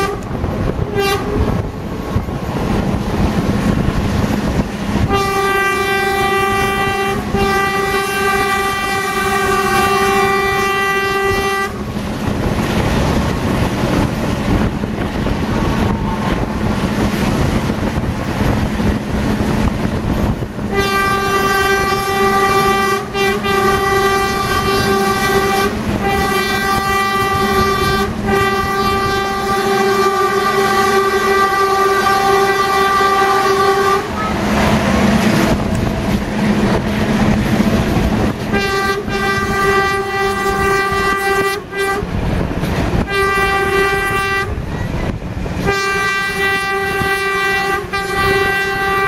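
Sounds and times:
train horn blast: 0.0 - 1.7, 5.0 - 12.0, 20.7 - 34.7, 38.4 - 42.2, 43.0 - 45.0, 45.6 - 49.0
train wheels rumbling on rails: 0.0 - 49.0.

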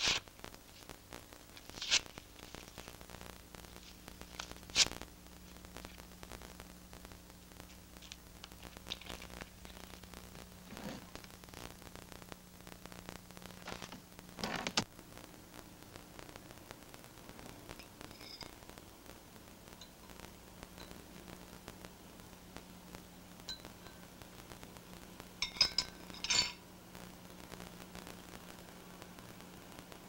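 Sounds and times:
faint hiss: 0.0 - 30.0
steady low hum: 0.0 - 30.0
paper photographs rustling: 1.5 - 2.9.

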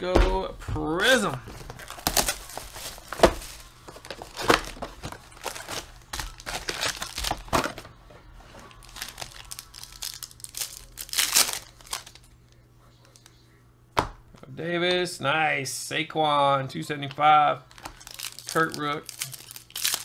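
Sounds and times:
foil wrappers crinkling: 1.0 - 12.3, 17.0 - 20.0
foil pack ripping open: 1.7 - 7.8, 8.7 - 12.2, 17.7 - 20.0.

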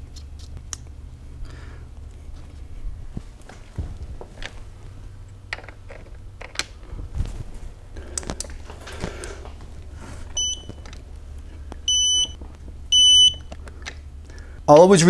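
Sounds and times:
torque wrench beeps: 10.4 - 10.8, 11.9 - 13.5.

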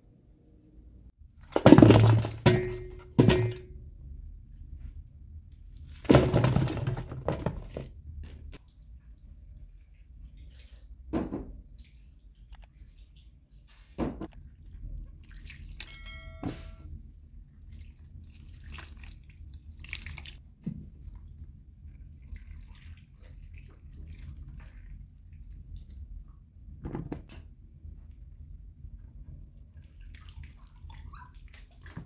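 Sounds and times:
water trickling and splashing: 8.6 - 16.0, 17.6 - 26.3, 29.7 - 32.0
ringing clink: 15.8 - 16.9.

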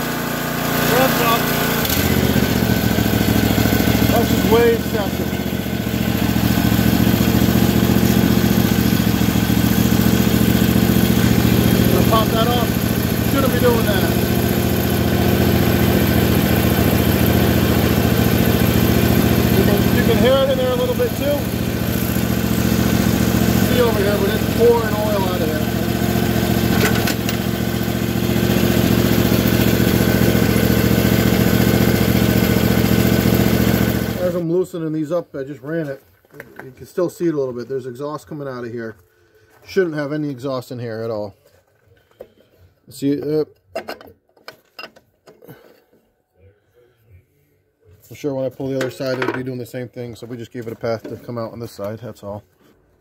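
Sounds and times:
engine idling: 0.0 - 34.4.

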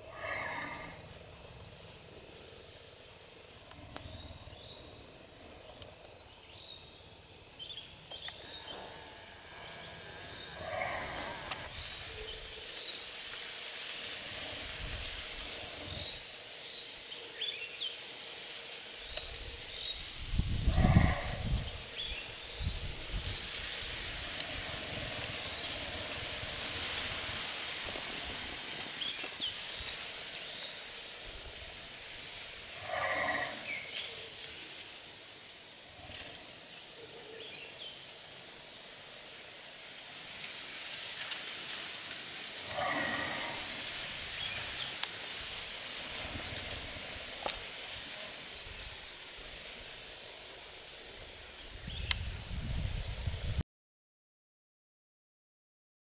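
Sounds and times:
elephant snoring: 0.0 - 1.0, 8.4 - 11.9, 20.6 - 21.6, 32.7 - 34.0, 42.6 - 44.8
steady high-pitched hiss: 0.0 - 53.6.

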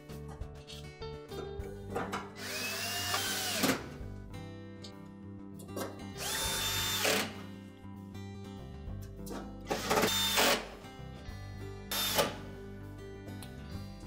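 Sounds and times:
background music: 0.0 - 14.0
cordless drill driving screws: 2.4 - 3.9, 6.2 - 7.4, 9.7 - 10.7.

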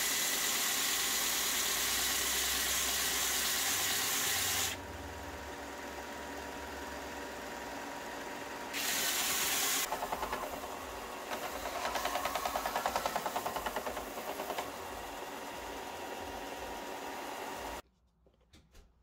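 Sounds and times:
sander motor hum: 0.0 - 17.8
wood grinding on sanding belt: 8.8 - 14.8.

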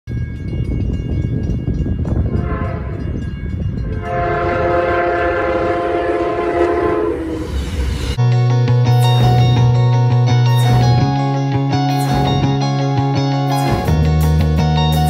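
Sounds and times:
train rumble: 0.1 - 8.2
locomotive air horn: 2.4 - 3.0, 4.0 - 7.6
guitar music: 8.2 - 15.0.

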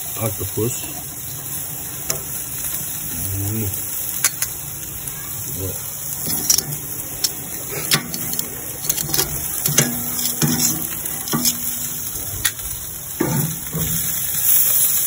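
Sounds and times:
shrimp sizzling on a grill: 0.0 - 15.0
metal tongs clicking on grate: 2.0 - 2.3, 4.2 - 4.6, 6.2 - 12.6.

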